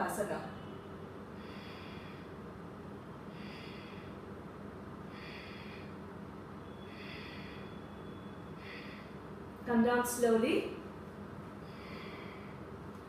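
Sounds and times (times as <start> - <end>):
woman breathing with effort: 1.2 - 9.6, 11.2 - 13.0.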